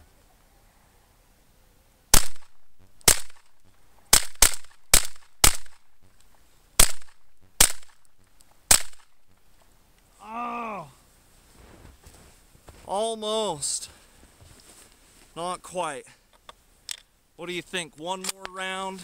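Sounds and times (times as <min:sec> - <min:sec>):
shotgun shots: 0:02.1 - 0:06.0, 0:06.8 - 0:08.1, 0:08.7 - 0:09.2.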